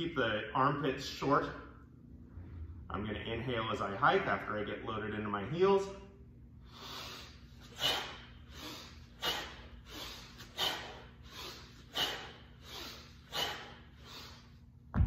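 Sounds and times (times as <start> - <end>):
man breathing hard: 6.6 - 14.7
forceful exhales: 6.7 - 14.5.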